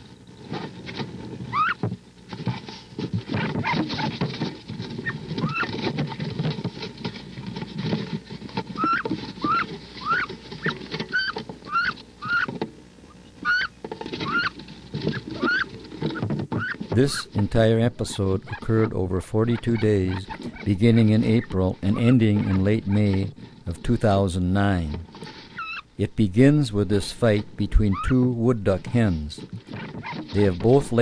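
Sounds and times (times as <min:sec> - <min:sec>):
rustling and knocking in nest box: 0:00.0 - 0:25.8, 0:27.2 - 0:31.0
duck squealing calls: 0:01.5 - 0:01.8, 0:05.0 - 0:05.8, 0:08.8 - 0:17.2, 0:21.3 - 0:23.1, 0:25.5 - 0:25.9, 0:27.8 - 0:28.2.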